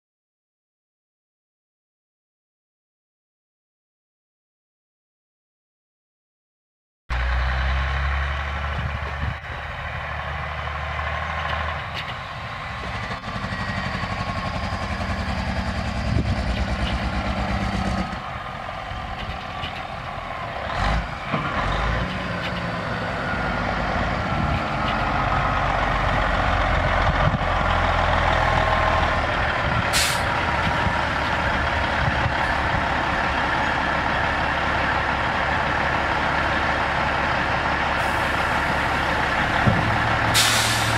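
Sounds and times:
diesel truck engine driving: 7.1s - 40.9s
short air hiss: 29.9s - 30.2s, 40.3s - 40.9s.

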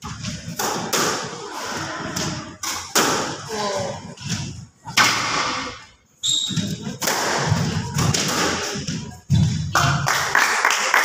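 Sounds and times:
ball hitting court wall echoing: 6.5s - 10.0s
racket striking squash ball: 6.5s - 10.0s.

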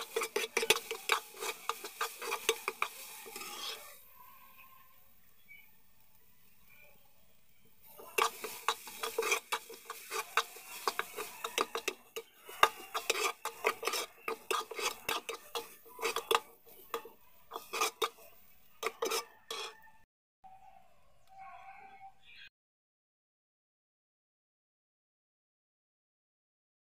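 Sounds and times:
metal spoon scraping a metal pot: 0.0s - 4.0s, 7.8s - 20.0s.

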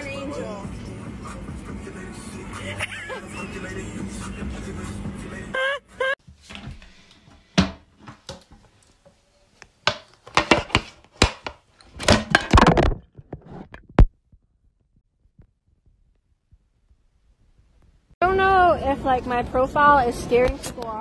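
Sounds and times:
pitch-bending vocal cry: 5.4s - 6.2s
knocks and thumps: 9.8s - 14.4s.

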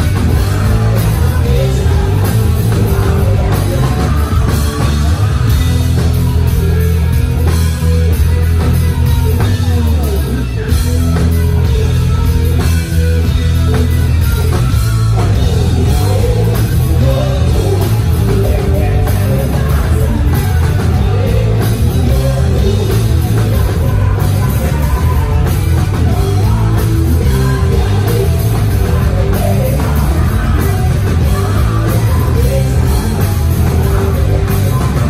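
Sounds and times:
person singing: 0.0s - 6.7s, 15.2s - 35.0s
bass guitar: 0.0s - 35.0s
distorted electric guitars: 0.0s - 35.0s
drum kit: 0.0s - 35.0s.

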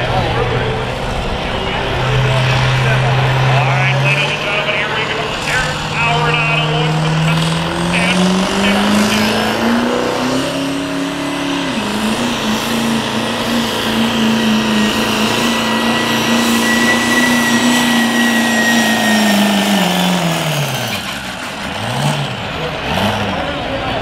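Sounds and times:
pickup truck engine at high revs: 0.0s - 24.0s
high turbo whistle: 14.4s - 19.8s.

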